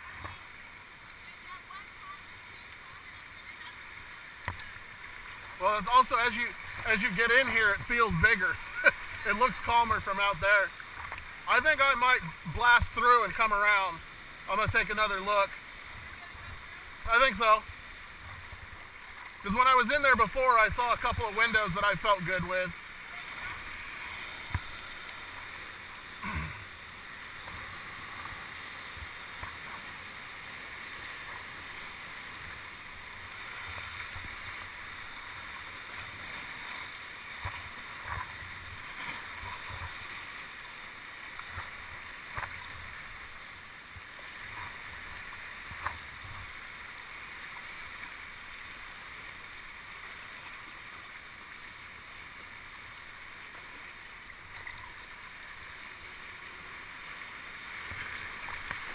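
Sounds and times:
water lapping around kayak: 0:00.0 - 0:58.9.

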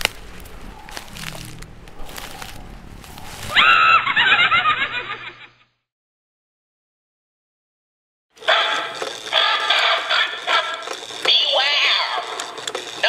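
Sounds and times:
dark rumbling drone: 0:00.0 - 0:05.2
high wavering cry: 0:03.3 - 0:04.9.

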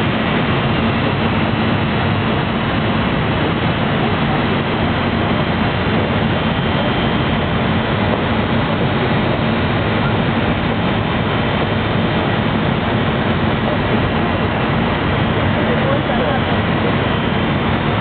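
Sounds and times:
low hum: 0:00.0 - 0:18.0
steady rushing water: 0:00.0 - 0:18.0.

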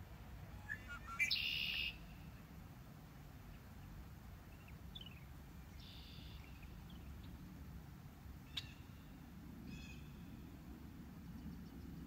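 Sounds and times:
songbirds calling: 0:00.4 - 0:02.6, 0:03.4 - 0:07.5, 0:08.4 - 0:12.0
buzzy bird trill: 0:00.6 - 0:02.0.

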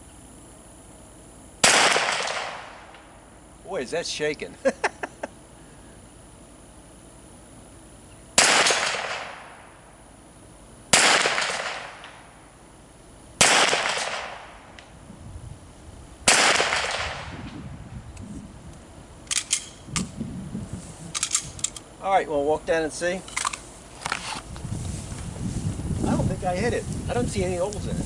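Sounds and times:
pistol shots echoing: 0:08.4 - 0:09.6, 0:10.9 - 0:12.1, 0:13.4 - 0:14.5.

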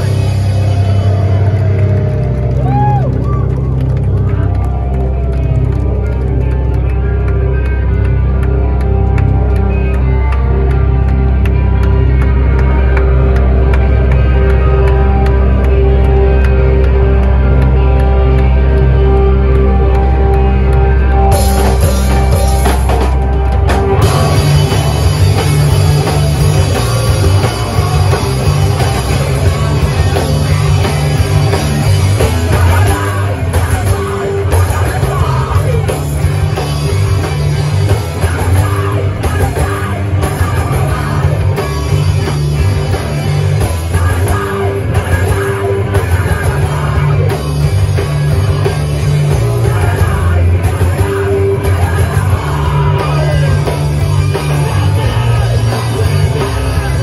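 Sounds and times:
drum kit: 0:00.0 - 0:04.0, 0:07.6 - 0:57.0
live punk rock band: 0:00.0 - 0:57.0
yelled vocals: 0:21.2 - 0:57.0.

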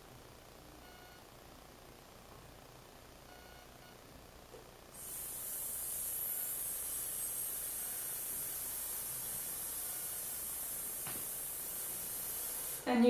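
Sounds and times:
woman exhaling a steady hiss: 0:05.0 - 0:12.9.

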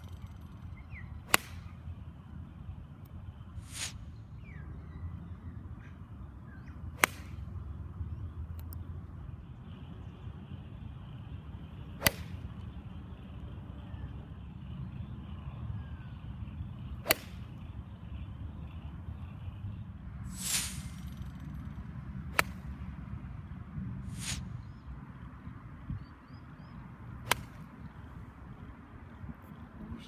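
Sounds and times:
golf club striking ball: 0:01.3 - 0:01.7, 0:07.0 - 0:07.4, 0:12.0 - 0:12.4, 0:17.0 - 0:17.5, 0:22.3 - 0:22.7, 0:27.2 - 0:27.7.

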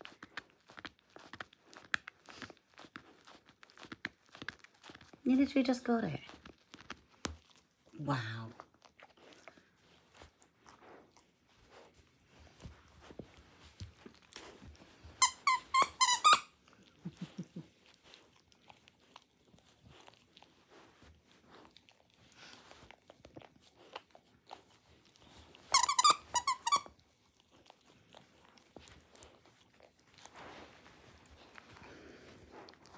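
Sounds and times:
dog chewing plush toy: 0:00.0 - 0:32.9
dog toy squeaker squeaking: 0:15.2 - 0:16.5, 0:25.7 - 0:26.9.

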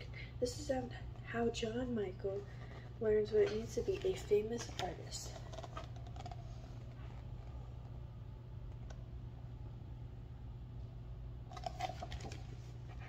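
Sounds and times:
steady low hum: 0:00.0 - 0:13.0
book page turning: 0:03.5 - 0:07.6, 0:11.5 - 0:12.7.

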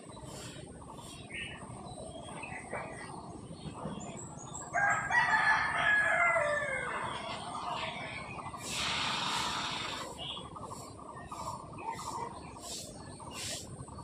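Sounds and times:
rooster crowing: 0:04.8 - 0:07.0
faint bird chirps: 0:06.4 - 0:14.0.

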